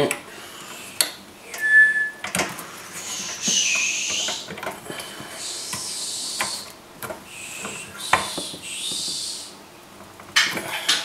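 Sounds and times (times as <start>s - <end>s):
breathy hissing: 0.3s - 1.2s, 2.5s - 9.6s.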